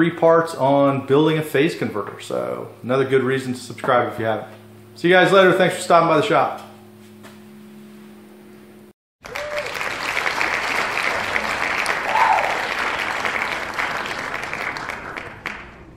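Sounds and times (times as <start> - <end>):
low steady hum: 0.0 - 15.9
crowd applauding: 9.2 - 15.9.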